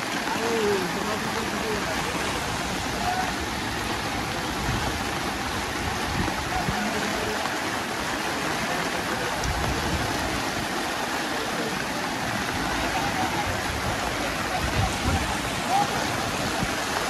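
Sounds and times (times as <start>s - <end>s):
floodwater rushing: 0.0s - 17.0s.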